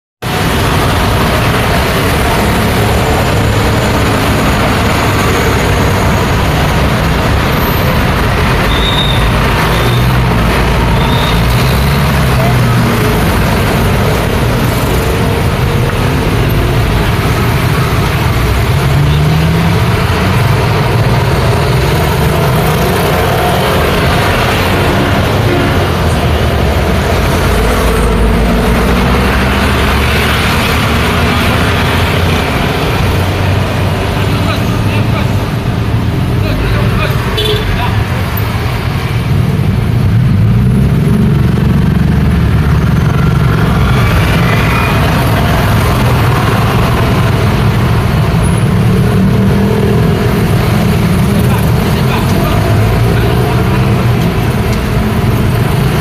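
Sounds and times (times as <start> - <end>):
scooter engines passing: 0.2 - 56.0
truck engines passing: 0.2 - 56.0
motor scooters passing: 37.9 - 56.0.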